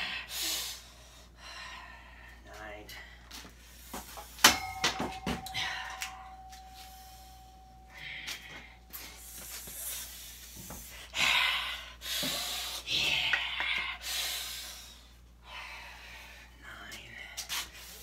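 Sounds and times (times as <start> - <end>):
ringing tone: 4.5 - 9.2.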